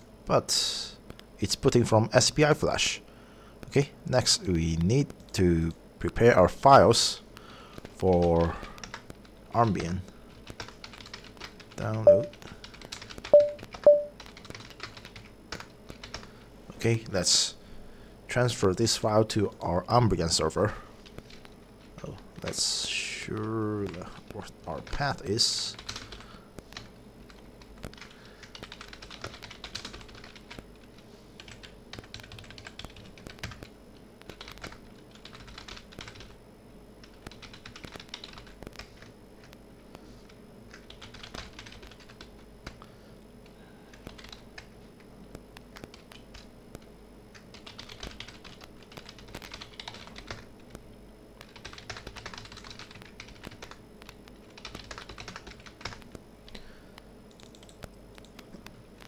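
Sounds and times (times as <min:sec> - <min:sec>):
faint steady hum: 0:00.0 - 0:59.0
computer keyboard typing: 0:07.9 - 0:16.3, 0:21.0 - 0:21.5, 0:25.7 - 0:26.2, 0:26.8 - 0:36.4, 0:37.0 - 0:39.1, 0:40.7 - 0:42.9, 0:43.9 - 0:44.8, 0:45.6 - 0:50.8, 0:51.4 - 0:56.7, 0:57.3 - 0:58.7.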